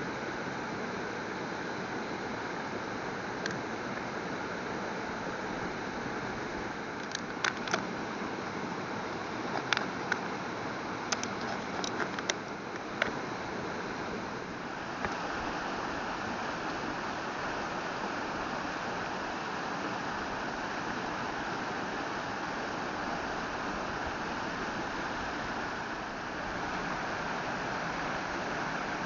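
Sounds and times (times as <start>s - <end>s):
stream rushing over rocks: 12.8s - 29.0s.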